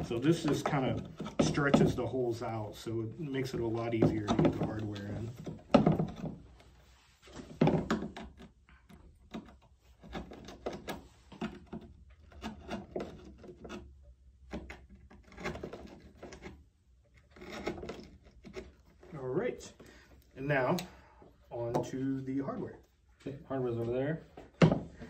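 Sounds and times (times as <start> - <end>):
tool scraping grip tape: 8.0 - 19.2.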